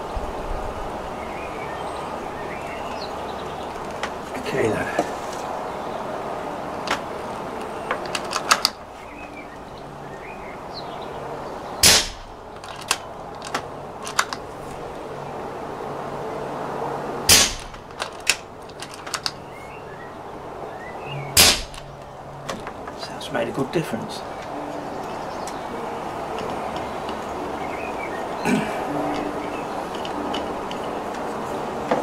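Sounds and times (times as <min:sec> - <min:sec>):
silenced air rifle shots: 0:11.8 - 0:12.3, 0:17.2 - 0:19.3, 0:21.4 - 0:21.8
rifle metallic clicks: 0:11.8 - 0:14.4, 0:17.3 - 0:19.4.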